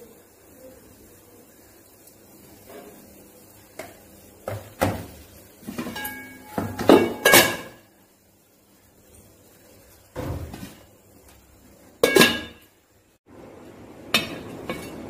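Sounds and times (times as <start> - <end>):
kitchenware knocking and clinking: 4.5 - 7.8, 12.0 - 12.6, 14.2 - 15.0.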